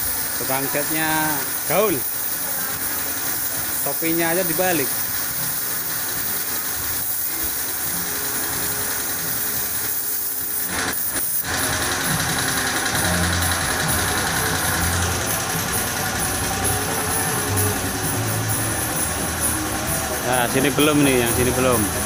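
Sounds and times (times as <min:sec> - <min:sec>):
spray gun hissing: 0:00.0 - 0:22.0
low machine hum: 0:11.4 - 0:22.0.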